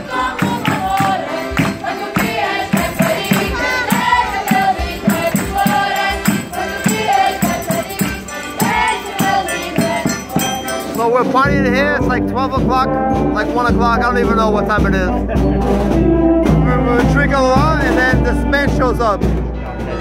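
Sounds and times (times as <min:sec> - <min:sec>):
folk group singing in chorus: 0:00.0 - 0:11.6, 0:14.9 - 0:20.0
hand drum and tambourine beat: 0:00.0 - 0:20.0.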